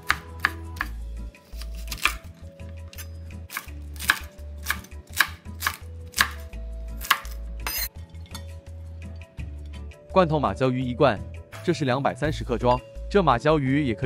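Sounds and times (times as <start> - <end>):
cleaver chopping on wooden board: 1.6 - 2.2, 3.5 - 6.4.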